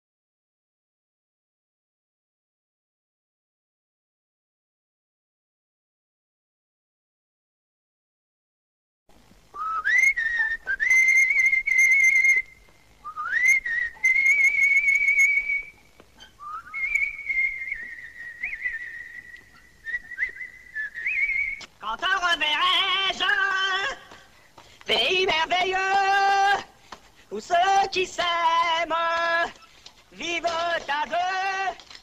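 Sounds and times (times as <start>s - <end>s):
whistled melody: 9.6s - 15.8s, 16.4s - 21.7s
person singing: 21.8s - 24.2s, 24.9s - 31.9s.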